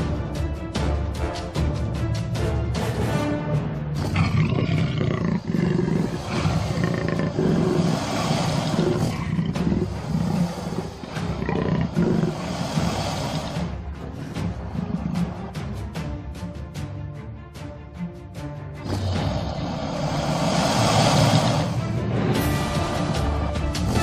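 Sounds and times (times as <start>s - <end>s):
background music: 0.0s - 24.0s
big cat growling and roaring: 4.0s - 16.0s, 18.8s - 24.0s.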